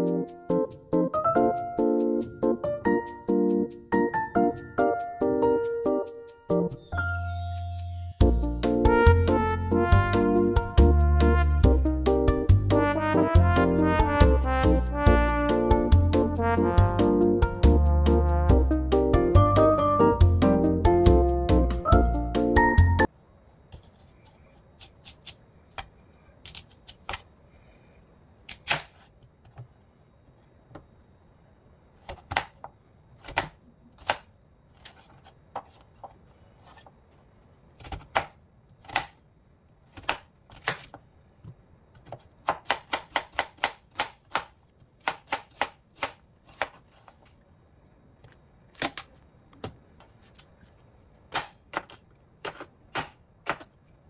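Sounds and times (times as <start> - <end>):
knife chopping on cutting board: 41.9 - 47.2.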